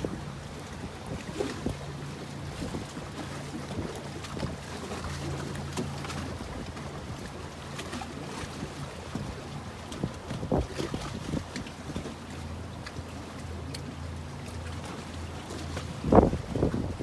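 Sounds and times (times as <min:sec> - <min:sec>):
low motor hum: 0:00.0 - 0:17.0
wind noise on microphone: 0:02.5 - 0:03.0, 0:09.1 - 0:12.0, 0:15.8 - 0:17.0.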